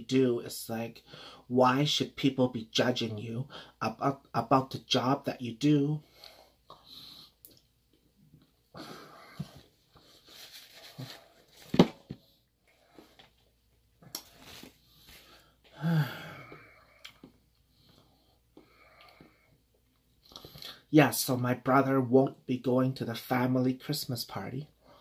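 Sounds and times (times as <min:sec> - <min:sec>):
heavy breathing: 0:01.0 - 0:01.5, 0:08.7 - 0:10.3, 0:14.9 - 0:17.0
voiced sighing breath: 0:08.8 - 0:09.6, 0:15.2 - 0:17.2.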